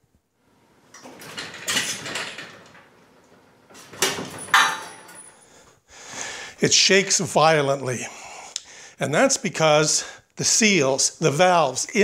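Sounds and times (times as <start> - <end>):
lift jack shaking and rattling: 1.0 - 2.9.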